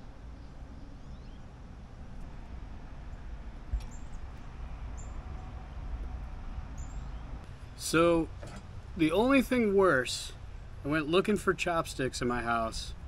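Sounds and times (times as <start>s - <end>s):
steady low rumble: 0.0s - 13.0s
faint high bird chirps: 0.4s - 1.5s.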